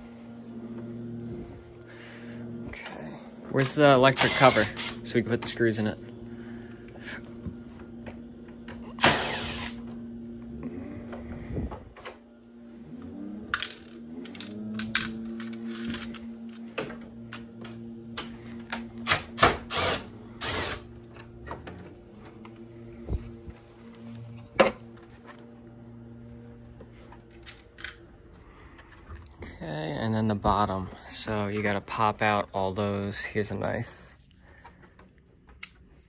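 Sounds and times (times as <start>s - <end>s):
steady low hum: 0.0s - 36.0s
screws and tools clattering: 3.6s - 5.0s, 13.5s - 16.6s.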